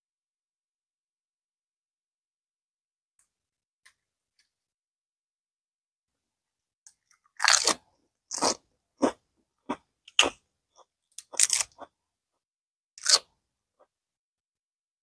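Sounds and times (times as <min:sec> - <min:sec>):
person chewing crunchy food: 0:07.1 - 0:12.0, 0:13.0 - 0:13.3.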